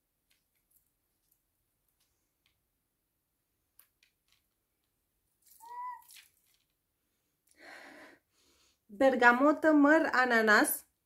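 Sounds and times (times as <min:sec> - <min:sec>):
soft breathy inhale: 0:07.5 - 0:08.9.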